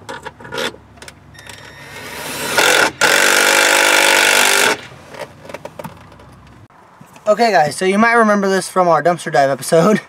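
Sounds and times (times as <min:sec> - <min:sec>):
power drill driving a screw: 0:01.4 - 0:04.9.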